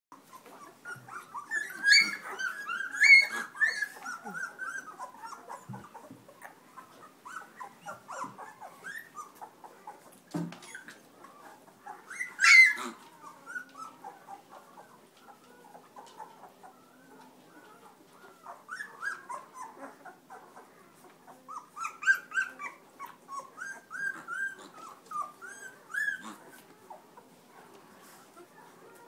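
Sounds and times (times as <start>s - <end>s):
puppies whimpering and squeaking: 0.1s - 29.0s
puppy squeal: 0.3s - 10.0s, 10.6s - 27.0s.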